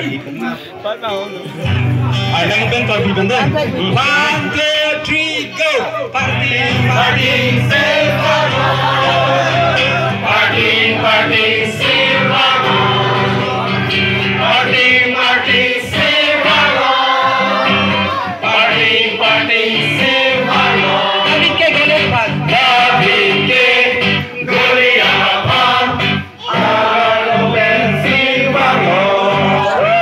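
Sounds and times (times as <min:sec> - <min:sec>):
crowd singing along: 0:06.0 - 0:30.0
amplified backing music: 0:06.2 - 0:29.9
group singing gospel song: 0:06.2 - 0:30.0.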